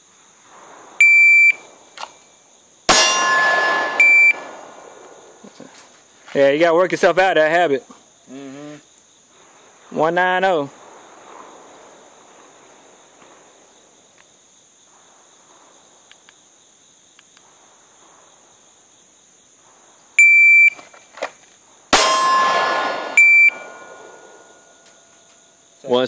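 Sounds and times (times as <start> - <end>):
shot timer beeps: 4.0 - 4.5, 23.2 - 23.8
pistol shot echoing: 22.0 - 24.6.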